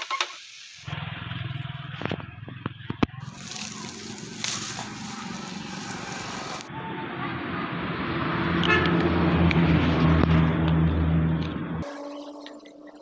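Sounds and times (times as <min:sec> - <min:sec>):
vehicle engine droning: 0:00.8 - 0:12.8
dry grass rustling: 0:00.9 - 0:06.7.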